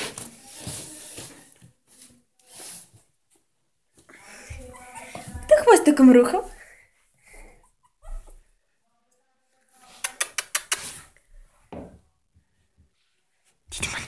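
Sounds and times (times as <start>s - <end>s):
quick sharp clicks: 10.0s - 11.0s.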